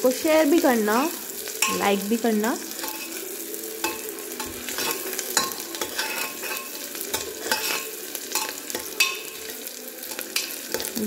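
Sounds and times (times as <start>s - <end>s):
onions sizzling in hot oil: 0.0s - 11.0s
spatula scraping metal pot: 2.7s - 3.2s, 3.8s - 11.0s.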